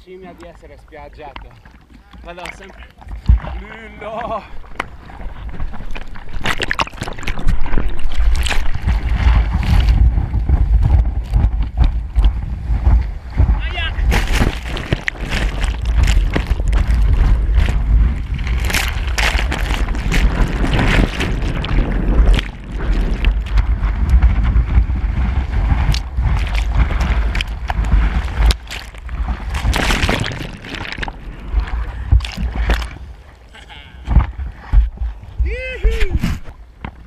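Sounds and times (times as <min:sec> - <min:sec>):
water slapping camera: 0:00.0 - 0:37.0
wind on microphone: 0:03.0 - 0:33.4, 0:34.0 - 0:37.0
whitewater rushing and splashing: 0:12.2 - 0:33.1.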